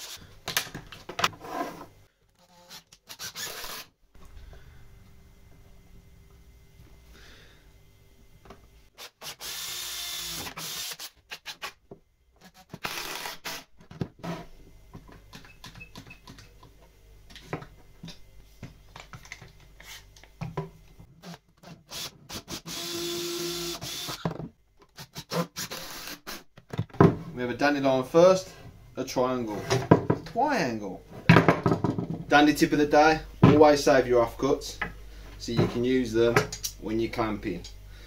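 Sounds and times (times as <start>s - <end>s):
cordless drill boring into wood: 2.4s - 3.9s, 9.0s - 11.7s, 12.5s - 13.7s, 21.2s - 24.2s, 25.0s - 26.3s.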